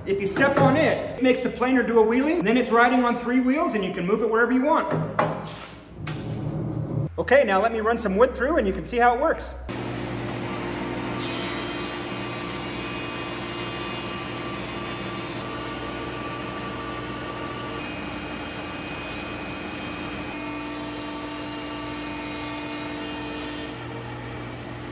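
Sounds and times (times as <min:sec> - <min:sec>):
wood planer humming: 0:09.7 - 0:24.9.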